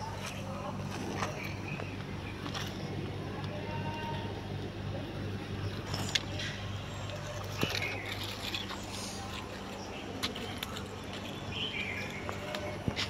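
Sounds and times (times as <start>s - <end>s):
steady low hum: 0.0s - 13.0s
plastic toys clicking on gravel: 5.8s - 13.0s.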